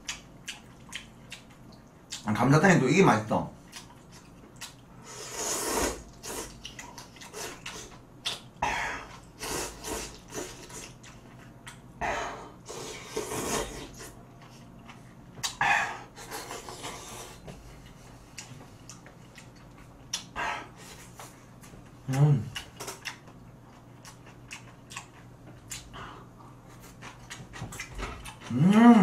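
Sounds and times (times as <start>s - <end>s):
quiet chewing: 0.0s - 2.3s, 3.6s - 4.9s, 6.1s - 11.9s, 12.7s - 29.0s
wet slurping of noodles: 5.0s - 6.6s, 12.7s - 14.1s.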